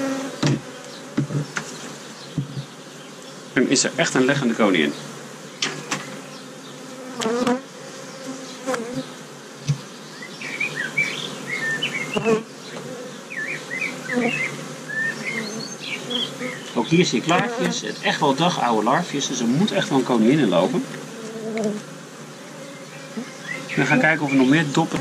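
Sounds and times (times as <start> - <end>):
bees buzzing: 0.0 - 25.0
wooden frame knocks and scrapes: 0.4 - 1.7, 2.3 - 2.7.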